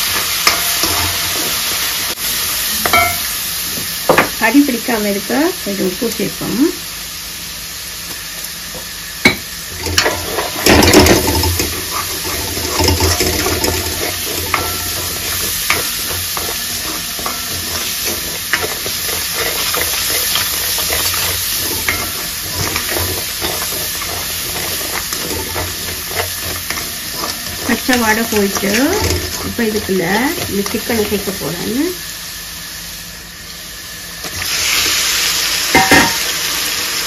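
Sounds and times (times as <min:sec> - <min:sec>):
onions sizzling in pan: 0:00.0 - 0:37.0
ladle scraping pan: 0:09.8 - 0:31.4.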